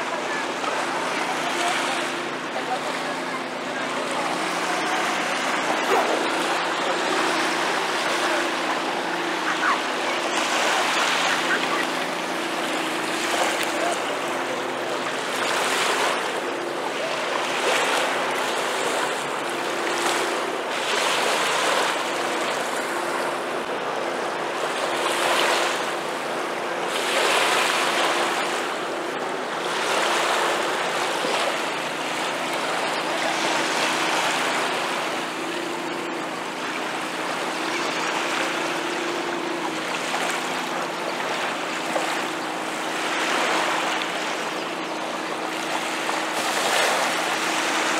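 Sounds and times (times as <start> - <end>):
low engine hum: 0.0 - 47.9
waves lapping on sand: 0.0 - 47.9.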